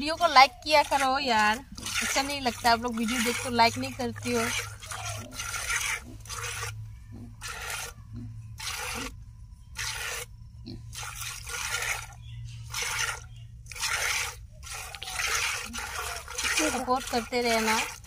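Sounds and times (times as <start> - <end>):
milk squirting into bucket: 0.0 - 6.8, 10.9 - 18.0.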